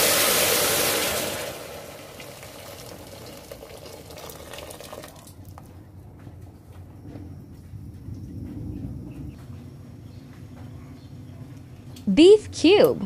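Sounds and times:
water pouring into metal pot: 0:00.0 - 0:05.6.

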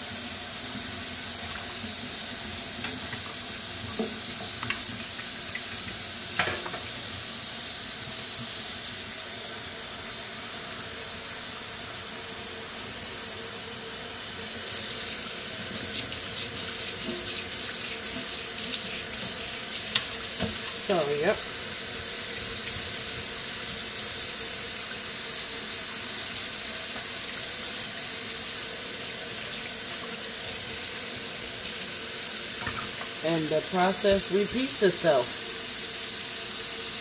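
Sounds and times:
tap running into steel sink: 0:03.9 - 0:05.3, 0:06.4 - 0:06.9, 0:19.2 - 0:20.7, 0:32.6 - 0:33.2.

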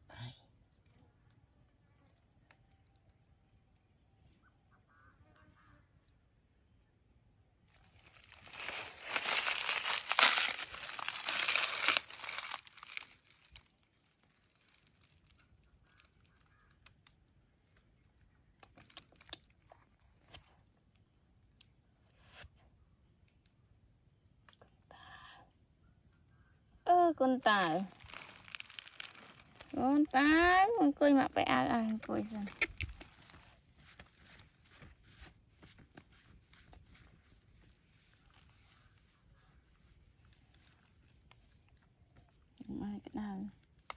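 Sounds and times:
loud crinkling rustle: 0:08.0 - 0:16.5, 0:27.6 - 0:30.0, 0:32.2 - 0:37.4.

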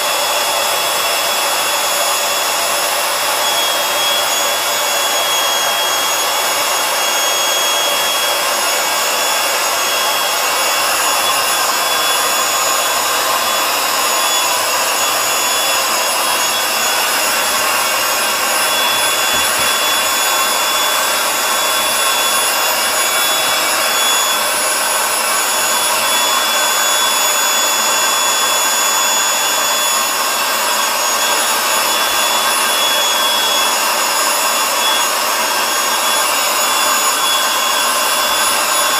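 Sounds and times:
electric air pump whirring: 0:00.0 - 0:38.9.

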